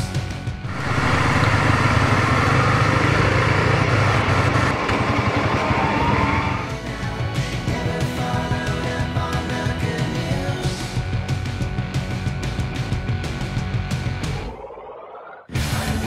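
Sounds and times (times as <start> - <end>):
rock music: 0.0 - 14.6, 15.5 - 16.0
motorcycle engine droning: 0.5 - 8.8.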